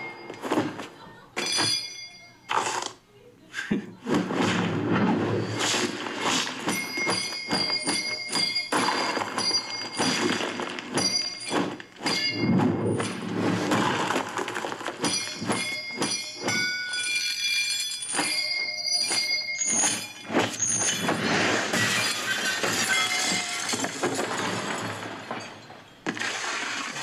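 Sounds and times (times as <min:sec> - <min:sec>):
high ringing tones: 0:00.0 - 0:00.8, 0:01.4 - 0:02.6, 0:06.6 - 0:13.3, 0:15.0 - 0:21.4
fight scene hits and crashes: 0:04.0 - 0:16.8, 0:19.1 - 0:27.0.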